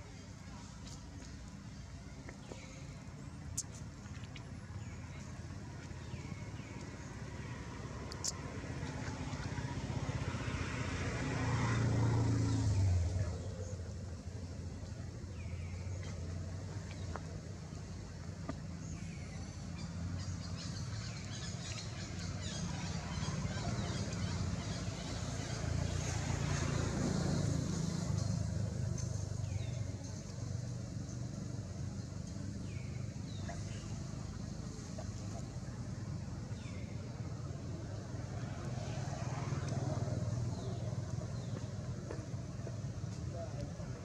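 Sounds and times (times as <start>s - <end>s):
low engine hum: 0.0s - 44.0s
vehicle engine passing by: 7.2s - 14.3s, 20.0s - 31.8s.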